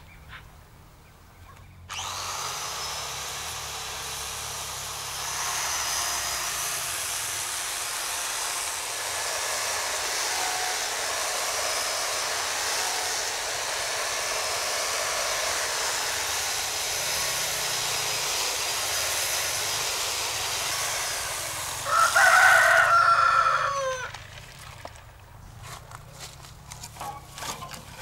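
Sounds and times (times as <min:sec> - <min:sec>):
rooster crowing: 0:21.8 - 0:24.2.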